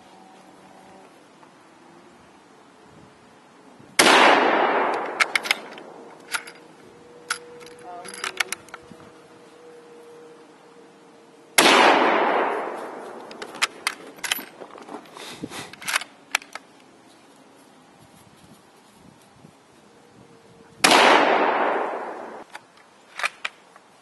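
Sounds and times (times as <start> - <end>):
rifle shot: 4.0 - 6.4, 11.6 - 14.1, 20.8 - 22.4
rifle bolt clicks: 4.8 - 8.9, 22.4 - 23.6.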